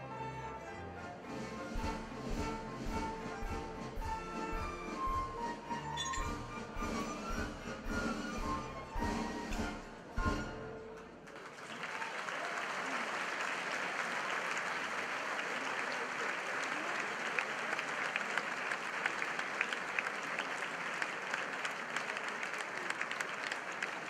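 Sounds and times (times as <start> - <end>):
audience applauding: 11.0 - 24.0.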